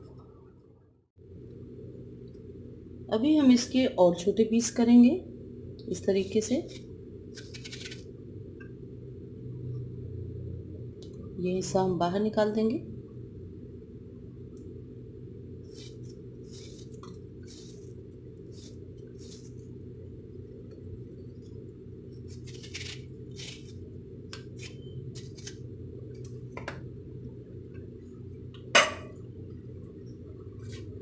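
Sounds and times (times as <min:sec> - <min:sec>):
low hum: 0:00.0 - 0:31.0
knife cutting watermelon: 0:22.2 - 0:25.6.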